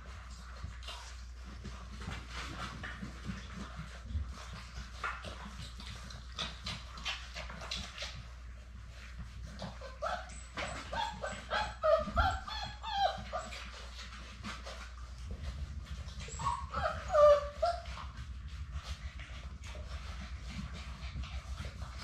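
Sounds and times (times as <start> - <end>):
puppies whimpering and yipping: 9.0 - 14.8, 15.4 - 21.9.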